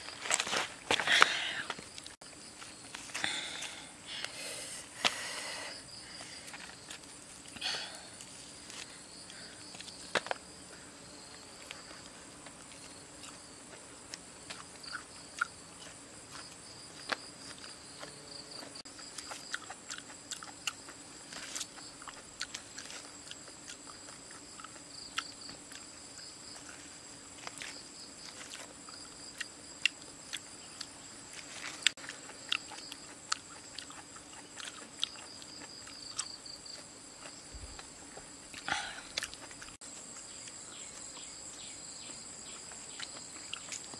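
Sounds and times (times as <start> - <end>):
high insect drone: 0.0 - 43.9
chewing: 11.7 - 31.0, 31.6 - 40.6, 42.6 - 43.9.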